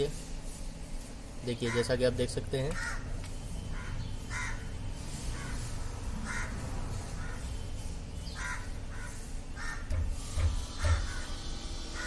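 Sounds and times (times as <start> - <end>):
crow cawing: 1.6 - 2.0, 2.7 - 3.1, 3.7 - 7.5, 8.4 - 10.1, 10.8 - 12.0.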